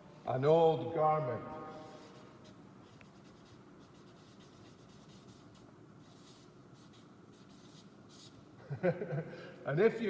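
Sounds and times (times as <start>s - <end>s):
marker scratching on paper: 1.6s - 8.4s.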